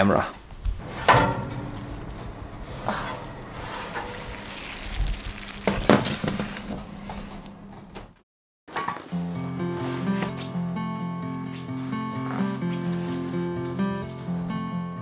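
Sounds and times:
food sizzling on oven tray: 0.8 - 7.9
metal tray clanking: 0.8 - 7.9
music: 8.8 - 15.0.

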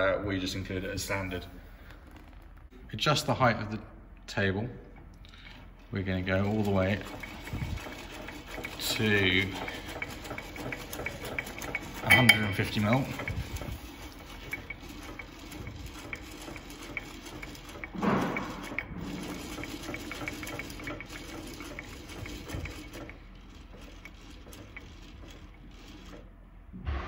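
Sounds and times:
handwheel mechanism ticking: 5.3 - 26.3
mechanical knock: 15.1 - 23.1.

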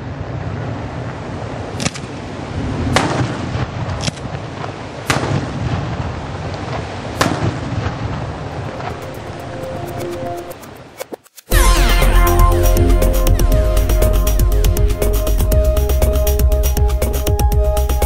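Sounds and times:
low rumble: 11.5 - 18.0.

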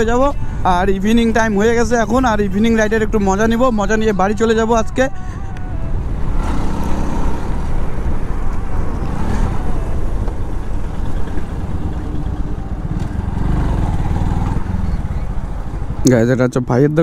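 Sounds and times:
motorcycle engine running: 8.8 - 16.1.

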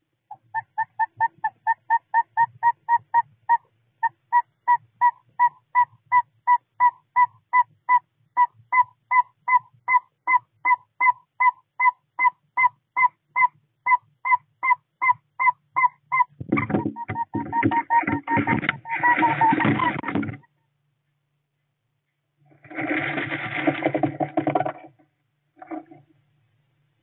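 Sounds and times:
owl whistled toots: 0.3 - 20.2.

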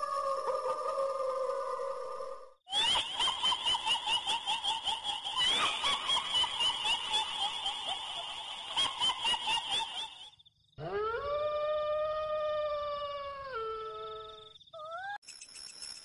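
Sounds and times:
dog-like howl: 0.0 - 2.5, 10.8 - 15.0
high-pitched cackling laugh: 2.7 - 10.4.

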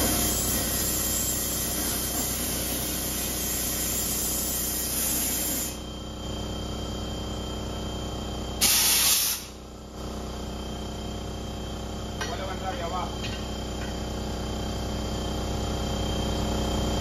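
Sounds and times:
compressed air hissing: 8.6 - 9.6
loud air blast: 8.6 - 9.6.

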